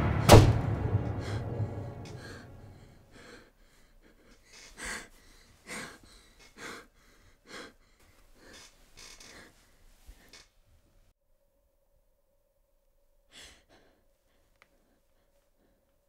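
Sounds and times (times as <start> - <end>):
woman breathing quickly: 1.0 - 10.6, 13.3 - 16.0.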